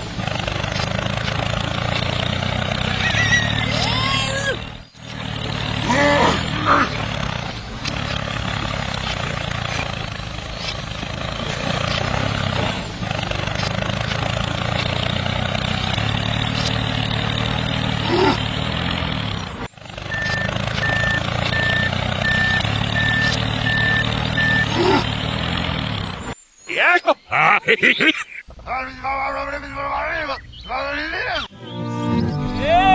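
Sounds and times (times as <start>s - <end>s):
tractor engine droning: 0.0s - 26.5s, 27.9s - 32.9s
high reversing beeps: 20.0s - 25.4s.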